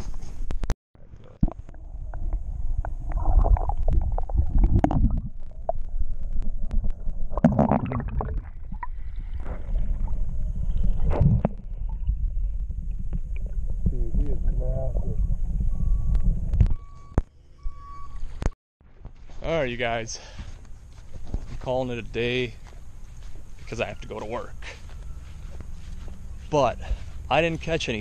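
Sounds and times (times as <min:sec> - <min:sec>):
muffled underwater rumble: 0:01.0 - 0:17.2.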